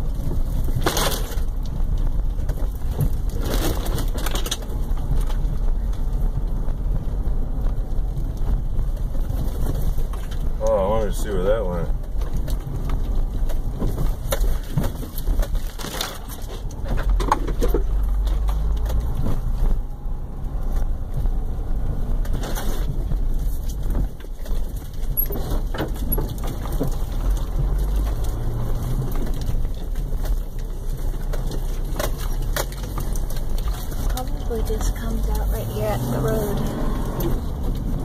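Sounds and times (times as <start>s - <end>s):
tyres rumbling on dirt trail: 0.0s - 38.0s
knocks and scrapes: 11.9s - 38.0s.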